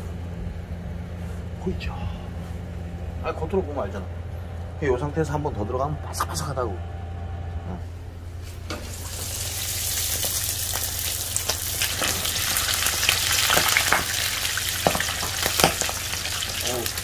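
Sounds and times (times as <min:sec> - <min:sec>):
frogs sizzling in hot oil: 0:08.7 - 0:17.0.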